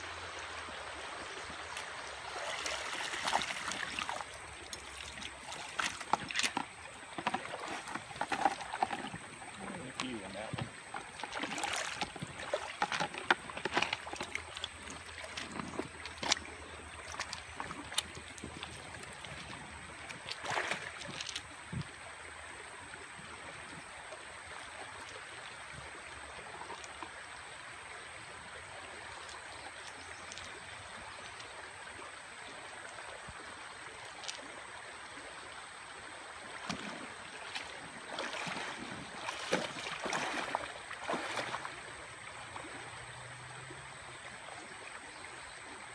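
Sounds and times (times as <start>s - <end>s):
stream running over rocks: 0.0s - 45.9s
knocks and splashes in water: 1.8s - 21.9s, 36.4s - 42.9s.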